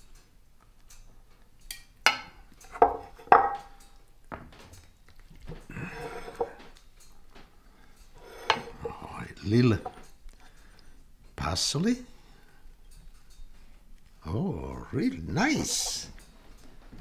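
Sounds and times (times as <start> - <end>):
utensils clinking on plate: 5.6 - 10.7, 15.0 - 16.7
spoon scraping in pan: 5.8 - 6.7, 8.1 - 10.0, 15.3 - 16.2.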